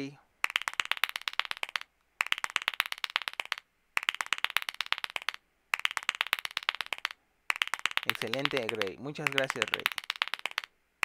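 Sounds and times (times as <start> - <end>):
fast clapping: 0.4 - 10.7.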